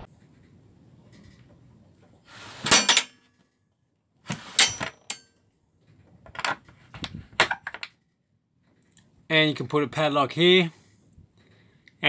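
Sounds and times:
metal scrape: 2.2s - 3.2s, 4.3s - 5.2s.

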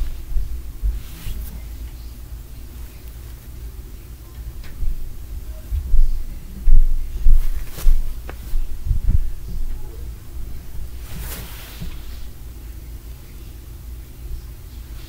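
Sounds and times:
dull heavy thuds: 5.7s - 12.3s.

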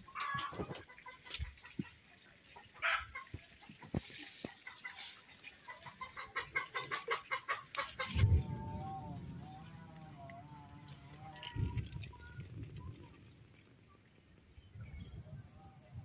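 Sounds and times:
chickens clucking: 0.0s - 8.6s.

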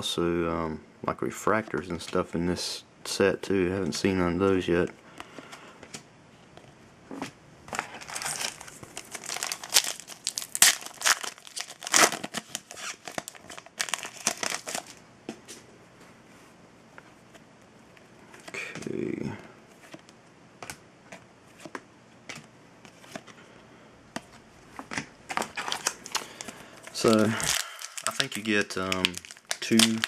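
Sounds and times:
wrapper tearing and crinkling: 7.8s - 15.0s, 25.4s - 30.0s.

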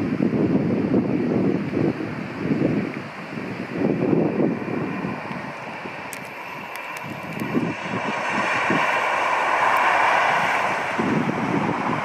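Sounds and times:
wind buffeting microphone: 0.0s - 12.0s
train passing at speed: 3.4s - 12.0s.

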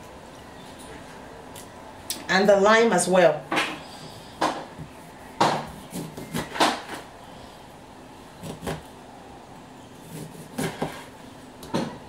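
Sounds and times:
knife cutting a lime: 5.5s - 7.1s.

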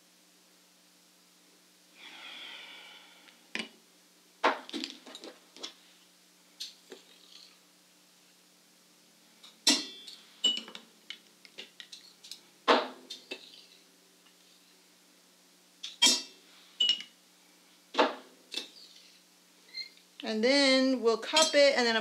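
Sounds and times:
spoons clinking on ceramic bowls: 9.7s - 10.8s, 15.9s - 17.1s, 21.3s - 21.7s.

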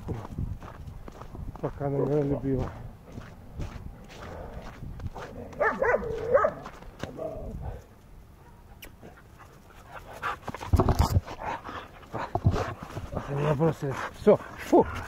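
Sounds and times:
dogs crying: 5.6s - 6.7s.

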